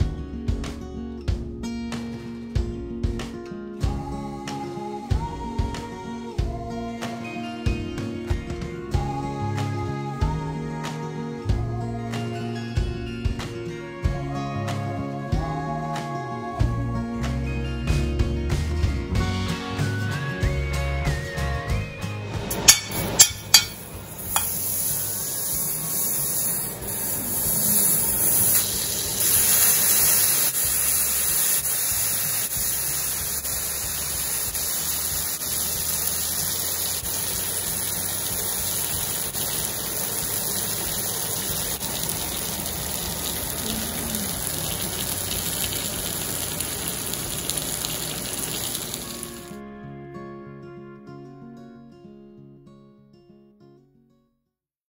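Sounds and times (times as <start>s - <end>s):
food sizzling on hot plate: 22.5s - 49.6s.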